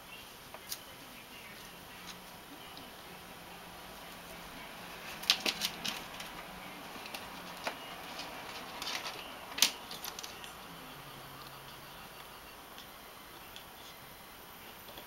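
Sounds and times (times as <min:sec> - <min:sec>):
dry plant stems crackling: 0:00.5 - 0:10.6.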